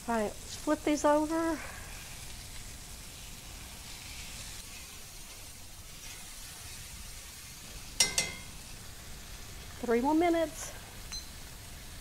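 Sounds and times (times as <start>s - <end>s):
steaks sizzling in hot oil: 0.0s - 12.0s
sharp ringing clink: 11.1s - 11.4s.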